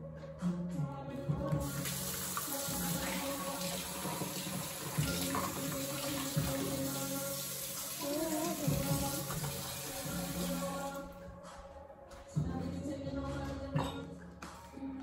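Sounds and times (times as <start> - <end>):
faucet running into steel sink: 1.6 - 10.9.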